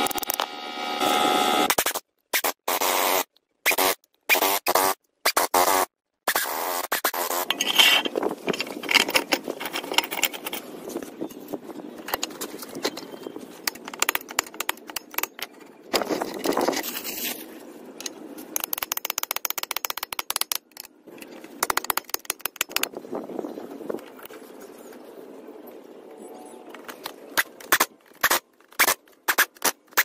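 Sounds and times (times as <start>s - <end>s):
metal parts clinking and scraping: 7.3s - 17.4s.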